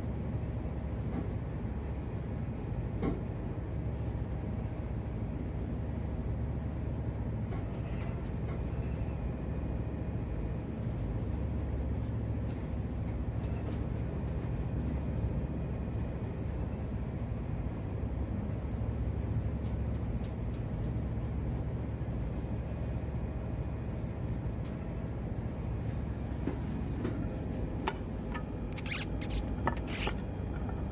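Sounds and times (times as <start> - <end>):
ship engine droning: 11.2 - 30.9.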